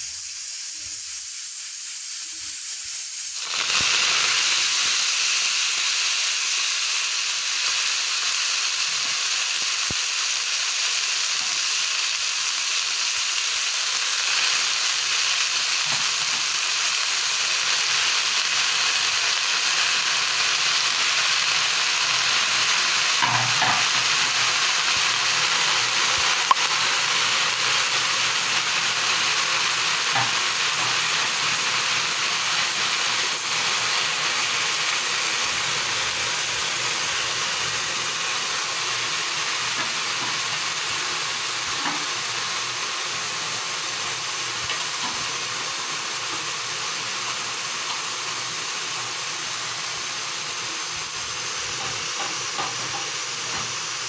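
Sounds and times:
greens sizzling in a wok: 0:00.0 - 0:54.0.

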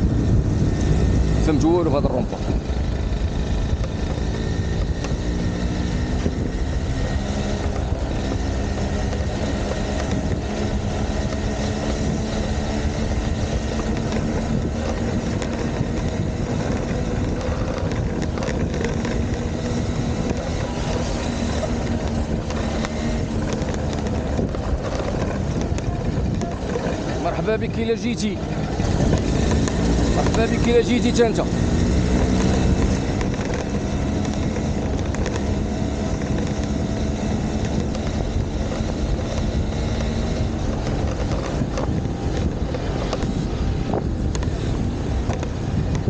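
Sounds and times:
vehicle engine running: 0:00.0 - 0:46.0
wind on microphone: 0:00.0 - 0:46.0.

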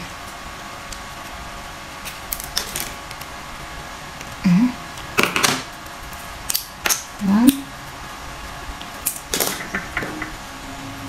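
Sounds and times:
person humming: 0:04.4 - 0:04.9.

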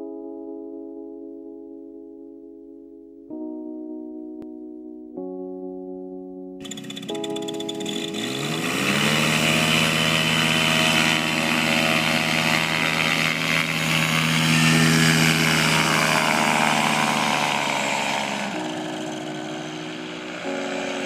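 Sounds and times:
paramotor engine and propeller: 0:06.6 - 0:21.0.

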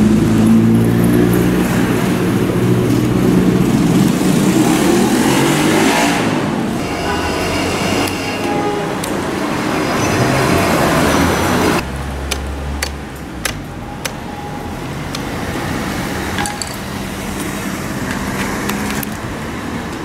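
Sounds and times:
vehicle passing: 0:00.0 - 0:19.8
traffic background: 0:00.0 - 0:20.0
sharp metallic clicks: 0:12.2 - 0:14.4.

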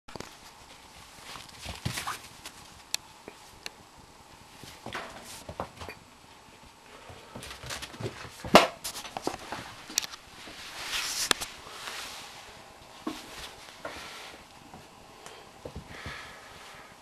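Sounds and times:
fabric rustling: 0:07.9 - 0:14.4.

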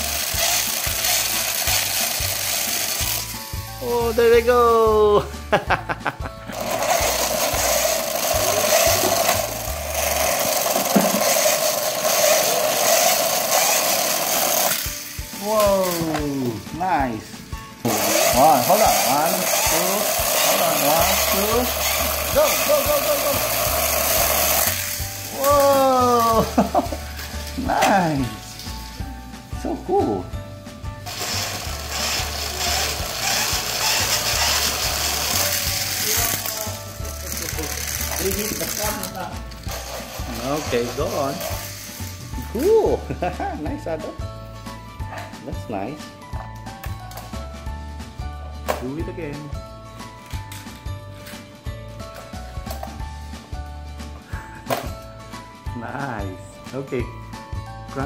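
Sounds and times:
toy truck whirring on hard floor: 0:00.0 - 0:03.5, 0:06.5 - 0:16.3, 0:17.9 - 0:27.6, 0:31.0 - 0:42.7.

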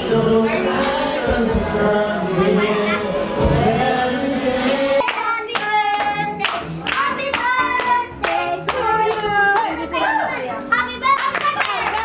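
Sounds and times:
people singing together: 0:00.0 - 0:10.3.

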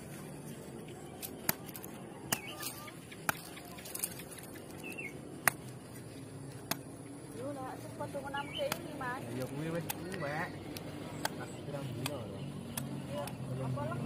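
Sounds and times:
bird chirping: 0:01.0 - 0:05.2, 0:08.2 - 0:14.0.

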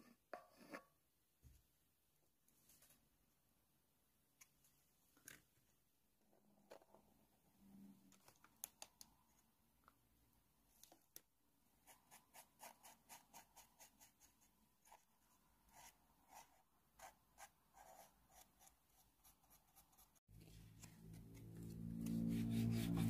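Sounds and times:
paintbrush strokes on wood: 0:21.4 - 0:23.0.

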